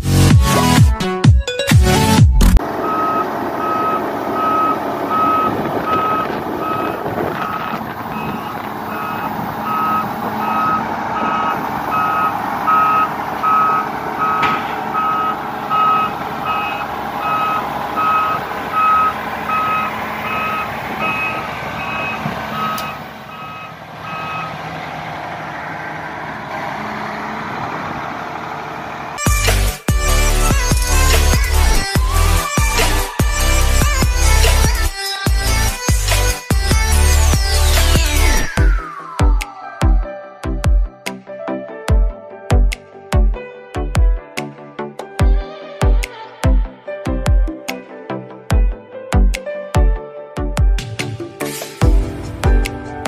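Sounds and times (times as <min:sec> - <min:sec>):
diesel engine running: 0:02.0 - 0:38.8
travel alarm beeping: 0:02.6 - 0:24.6.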